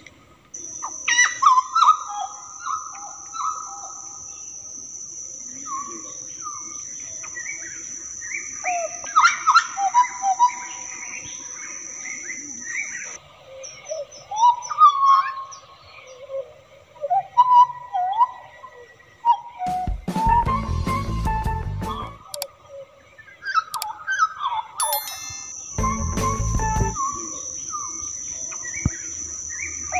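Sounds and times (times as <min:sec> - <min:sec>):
high-pitched insect drone: 0:00.6 - 0:13.2, 0:24.8 - 0:29.9
bird singing whistled notes: 0:24.8 - 0:29.9.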